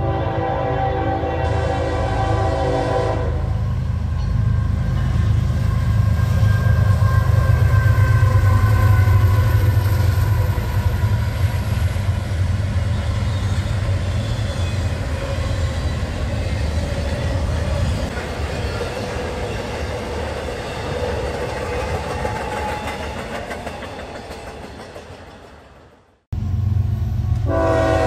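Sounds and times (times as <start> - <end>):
diesel locomotive engine rumble: 0.0 - 28.0
train wheels rumbling on rails: 1.4 - 28.0.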